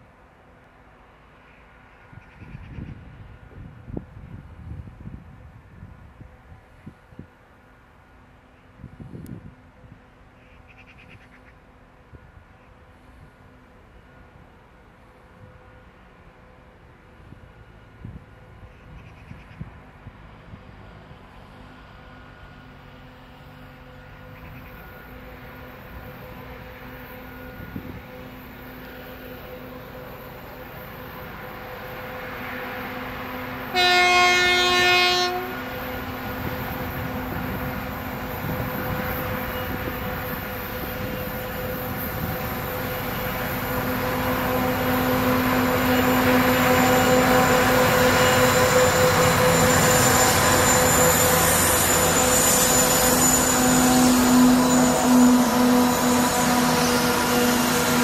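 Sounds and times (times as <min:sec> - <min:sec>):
train rolling noise: 0:00.0 - 0:58.0
locomotive engine drone: 0:11.5 - 0:58.0
locomotive horn blast: 0:33.6 - 0:35.8, 0:43.7 - 0:58.0.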